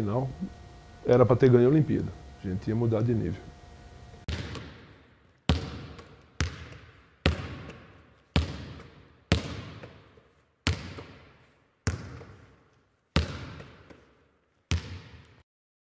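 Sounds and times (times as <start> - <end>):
basketball bouncing on hardwood floor: 4.3 - 12.6, 13.2 - 14.1, 14.7 - 15.4.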